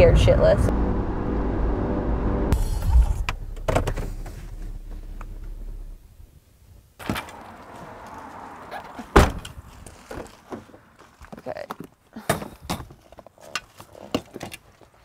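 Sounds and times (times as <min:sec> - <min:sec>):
car rumble from inside cabin: 0:00.0 - 0:06.3.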